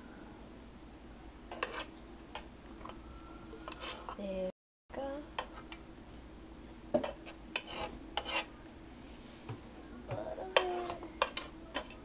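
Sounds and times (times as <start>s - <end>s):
metal utensil scraping pot: 1.5s - 1.9s, 3.6s - 4.2s, 7.0s - 8.5s.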